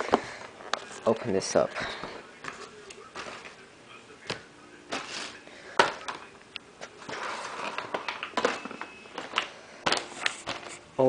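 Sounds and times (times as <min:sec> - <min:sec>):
rustling: 0:04.9 - 0:11.0.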